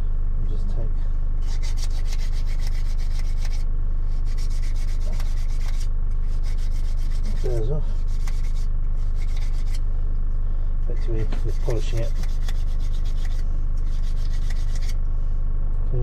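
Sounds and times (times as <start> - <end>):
steady low hum: 0.0 - 16.0
hand file rasping on key: 1.4 - 9.8, 10.9 - 15.0.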